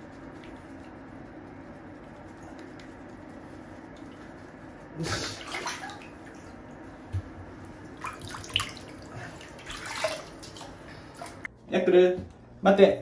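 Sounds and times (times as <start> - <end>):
steady low hum: 0.0 - 13.0
water splashing in bathtub: 5.0 - 11.5.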